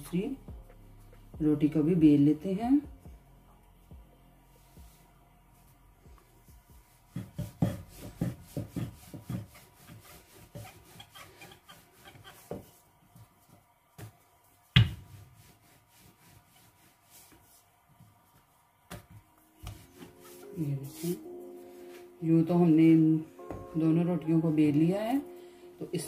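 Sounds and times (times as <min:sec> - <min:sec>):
rolling pin rolling dough: 0:06.9 - 0:21.3.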